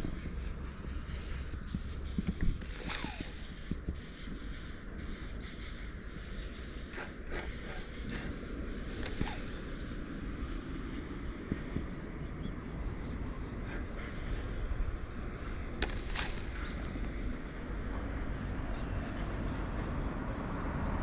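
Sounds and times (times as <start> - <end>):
sharp clicks: 0.0 - 4.7, 6.3 - 10.1, 15.1 - 20.0
wind on microphone: 0.0 - 21.0.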